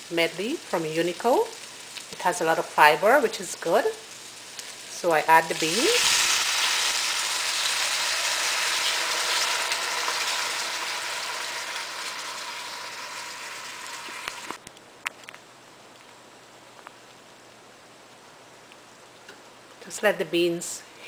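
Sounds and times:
beans sizzling in hot oil: 0:00.0 - 0:14.6.

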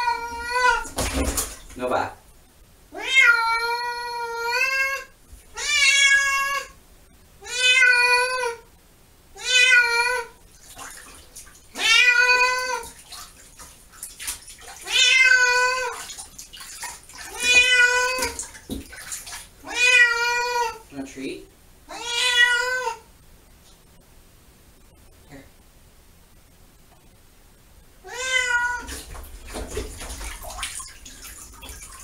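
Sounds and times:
cat meowing in distress: 0:00.0 - 0:01.0, 0:07.4 - 0:08.6, 0:11.8 - 0:12.9, 0:17.3 - 0:18.4, 0:21.9 - 0:23.0, 0:28.0 - 0:28.9.

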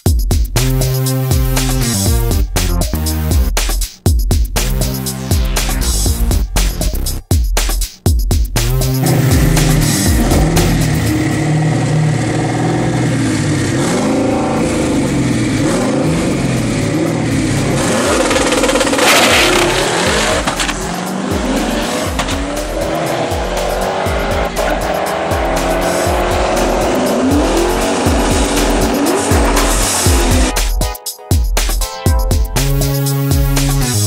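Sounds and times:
background music with steady beat: 0:00.0 - 0:12.2, 0:15.3 - 0:34.0
car engine revving and accelerating: 0:08.8 - 0:30.5.

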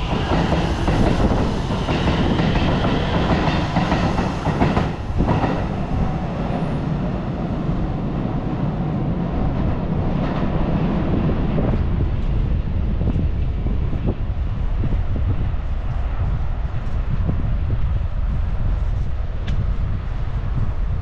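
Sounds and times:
train wheels rumbling on rails: 0:00.0 - 0:21.0.

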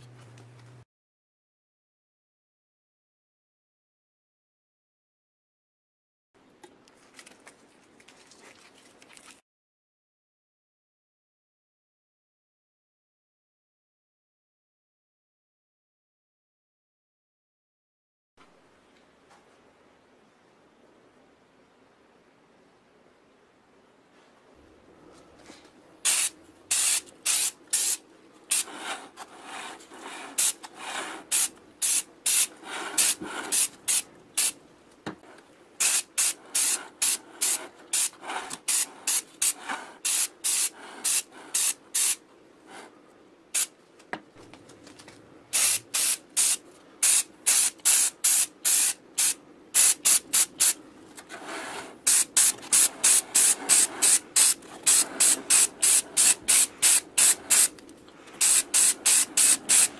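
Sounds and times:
spray paint can hissing: 0:26.0 - 0:29.0, 0:30.3 - 0:34.6, 0:35.8 - 0:42.2, 0:45.5 - 0:50.8, 0:52.0 - 0:57.8, 0:58.4 - 0:59.9.

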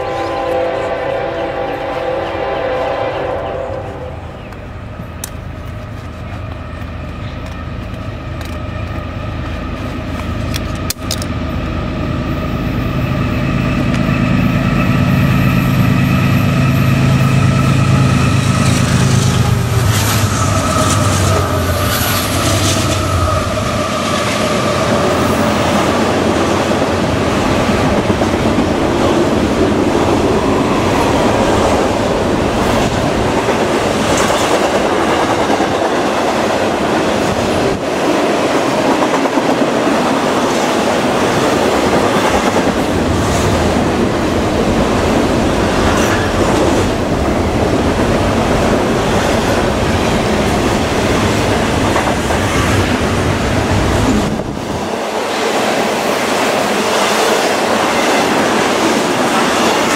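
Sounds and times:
diesel locomotive engines droning: 0:00.0 - 0:59.9
wheels clicking over rail joints: 0:05.2 - 0:11.4.

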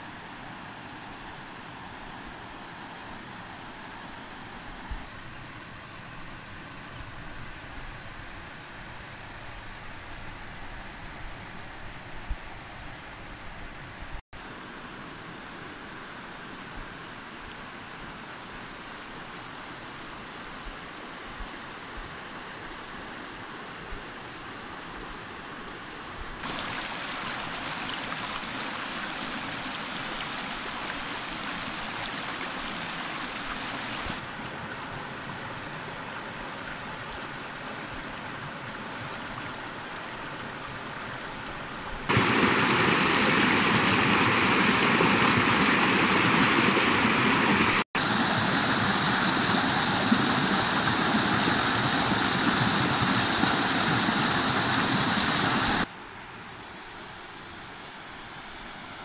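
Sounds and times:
mountain stream rushing over rocks: 0:14.4 - 0:55.9
white water splashing: 0:26.4 - 0:34.2, 0:42.1 - 0:55.9.

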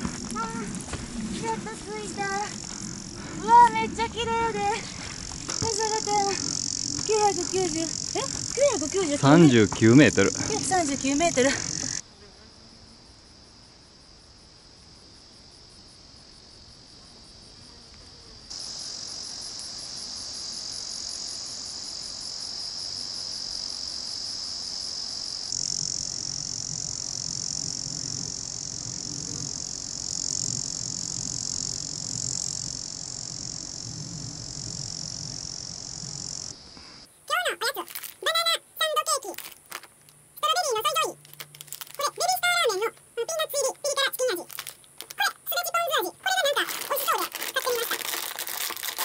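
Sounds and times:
low fluctuating rumble: 0:00.0 - 0:12.0, 0:25.6 - 0:36.7
insects chirring: 0:00.0 - 0:49.0.

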